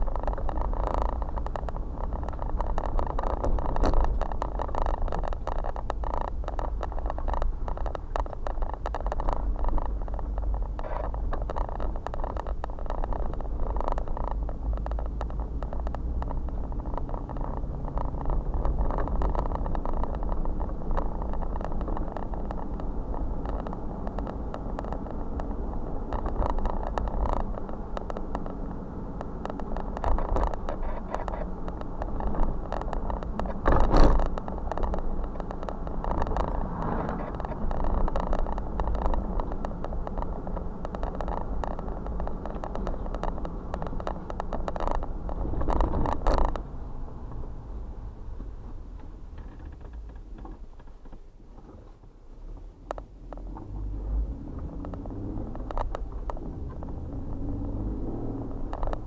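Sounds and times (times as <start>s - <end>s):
car engine and tyre rumble: 0.0s - 59.0s
small rattles: 0.0s - 59.0s.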